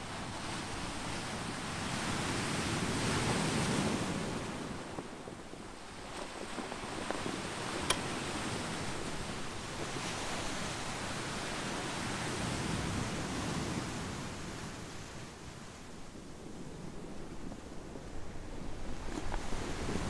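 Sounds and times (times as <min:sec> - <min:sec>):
surf washing over pebbles: 0:00.2 - 0:14.7
sharp click: 0:07.8 - 0:08.1.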